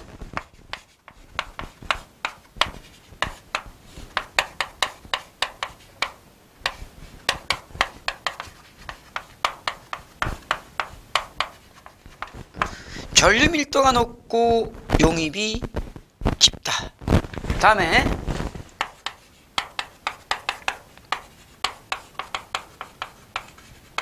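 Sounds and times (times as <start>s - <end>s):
chalk writing on chalkboard: 0.4s - 12.8s, 18.8s - 24.0s.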